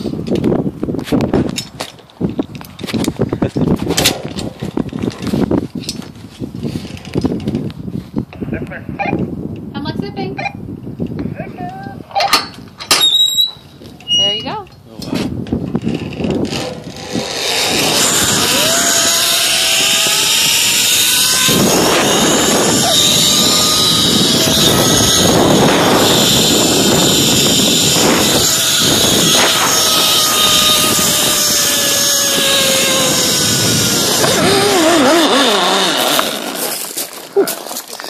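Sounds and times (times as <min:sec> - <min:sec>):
zip-line pulley whine: 0:15.8 - 0:37.8.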